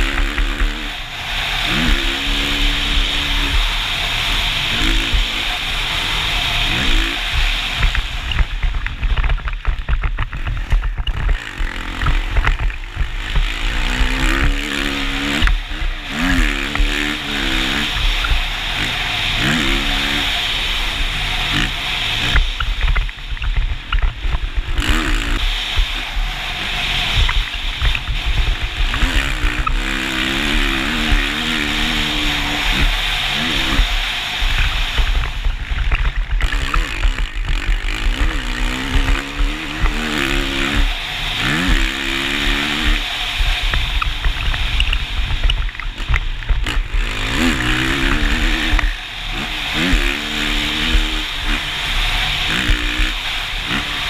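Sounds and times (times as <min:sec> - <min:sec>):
motorcycle engine revving: 0:00.0 - 0:54.0
wind noise on microphone: 0:00.0 - 0:54.0.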